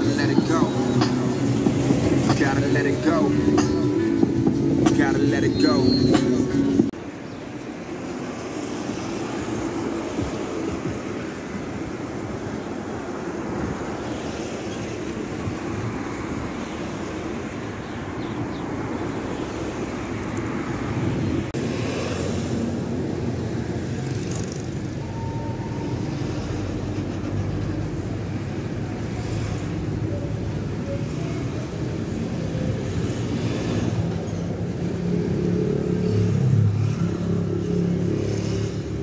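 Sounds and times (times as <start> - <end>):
boat engine rumbling: 0.0 - 7.0
wind noise on microphone: 0.0 - 7.0, 9.4 - 17.0, 19.6 - 23.5.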